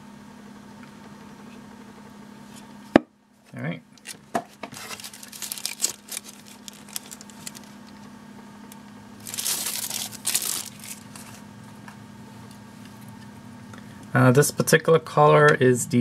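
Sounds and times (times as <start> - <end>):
thin wrapping crinkling: 4.0 - 8.1, 9.2 - 11.4.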